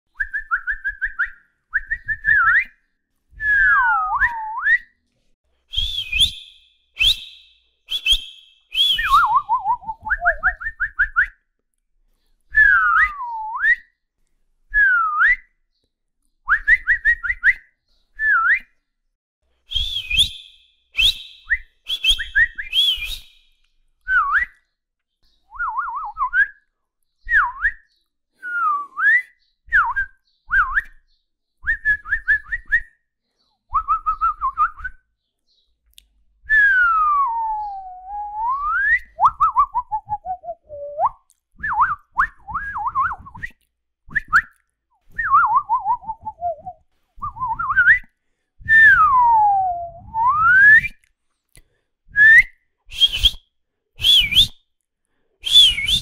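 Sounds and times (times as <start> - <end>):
person whistling calls: 5.7 - 11.3, 19.7 - 23.4, 28.4 - 31.0, 36.5 - 44.5, 45.1 - 51.0, 52.1 - 53.4, 54.0 - 54.6, 55.4 - 56.0.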